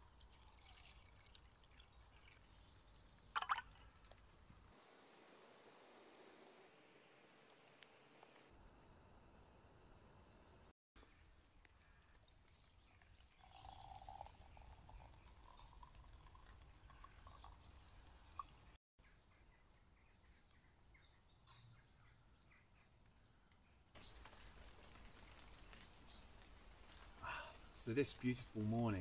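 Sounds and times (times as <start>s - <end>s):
liquid trickling into jar: 0.0s - 2.7s, 3.3s - 4.1s, 13.0s - 18.8s.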